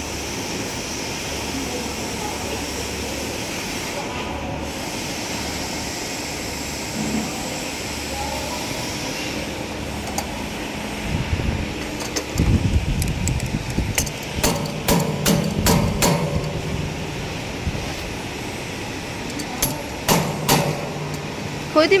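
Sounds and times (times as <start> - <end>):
factory machinery hum: 0.0 - 22.0
hand tools clicking on metal: 11.8 - 16.6, 19.2 - 21.2.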